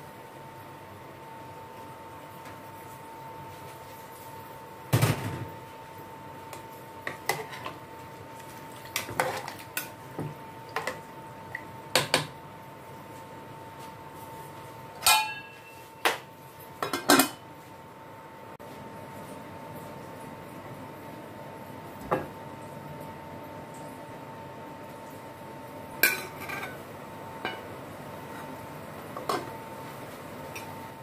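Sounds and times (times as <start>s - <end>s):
ladle clanking against metal pot: 15.0s - 15.6s.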